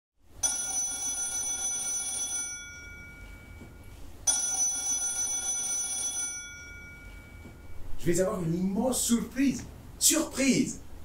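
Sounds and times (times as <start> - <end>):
telephone bell ringing: 0.4 - 7.8.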